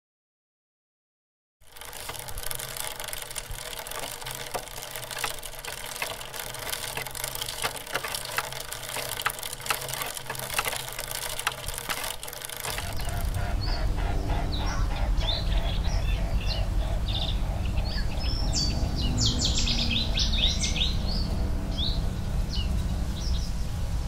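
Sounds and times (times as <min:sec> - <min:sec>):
bicycle clicks and rattles: 0:01.6 - 0:15.7.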